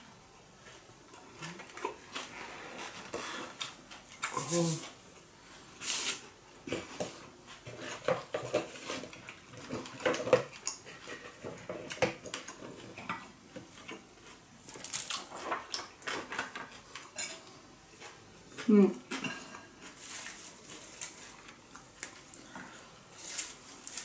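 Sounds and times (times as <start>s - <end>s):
plates and utensils clinking: 15.6s - 17.5s.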